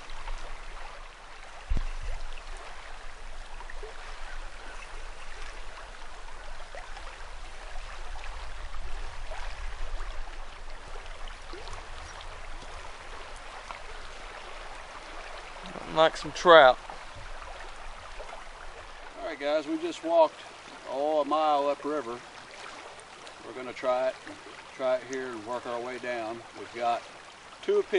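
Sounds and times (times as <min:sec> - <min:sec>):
low rumble on microphone: 0:00.0 - 0:19.2
river flowing: 0:00.0 - 0:27.9
thump: 0:01.6 - 0:02.2.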